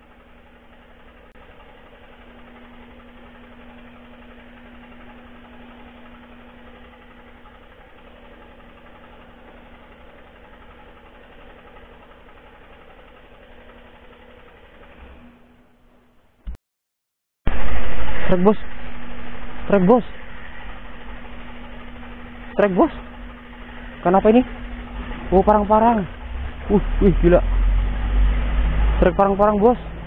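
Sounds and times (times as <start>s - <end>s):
boat engine humming: 0.0s - 16.1s, 17.5s - 30.0s.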